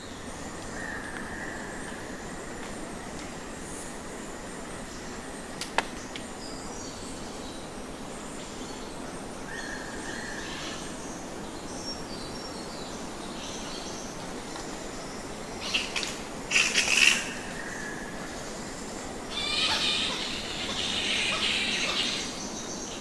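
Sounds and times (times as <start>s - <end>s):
background hiss: 0.0s - 23.0s
bats squeaking: 19.3s - 22.4s.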